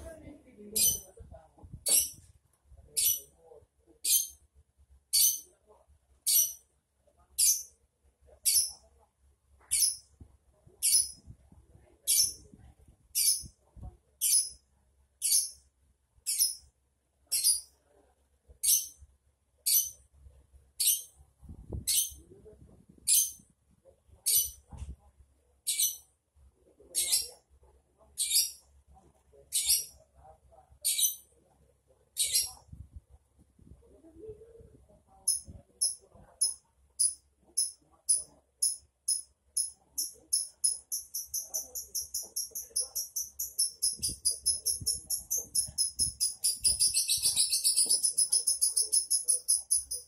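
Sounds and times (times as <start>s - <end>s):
lovebird chirping: 0.7s - 1.1s, 1.8s - 2.2s, 2.9s - 3.3s, 5.1s - 5.6s, 6.2s - 6.6s, 7.4s - 7.7s, 8.4s - 8.9s, 9.6s - 10.1s, 10.8s - 11.3s, 12.0s - 12.5s, 13.1s - 13.5s, 14.2s - 14.6s, 15.2s - 15.6s, 16.2s - 16.7s, 17.3s - 17.7s, 19.6s - 20.0s, 20.8s - 21.1s, 25.7s - 26.1s, 32.2s - 32.6s, 35.3s - 50.0s.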